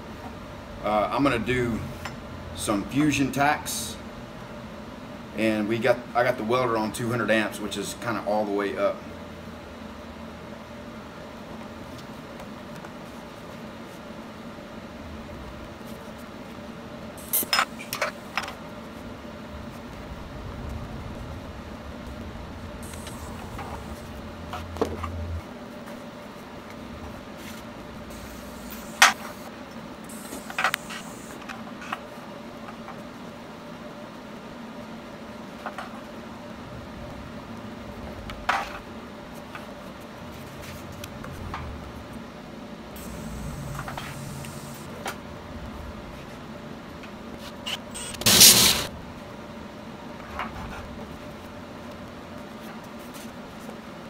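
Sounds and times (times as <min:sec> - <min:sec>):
welding arc hum: 0:14.9 - 0:31.6, 0:36.4 - 0:49.4
high hiss: 0:17.2 - 0:17.9, 0:22.6 - 0:24.7, 0:28.0 - 0:31.4, 0:43.0 - 0:45.0, 0:47.7 - 0:48.9.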